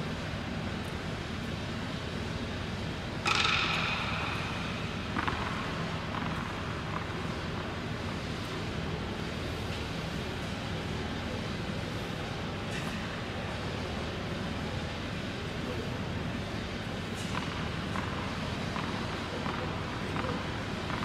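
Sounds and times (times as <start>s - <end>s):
indoor hall hum: 0.0s - 21.0s.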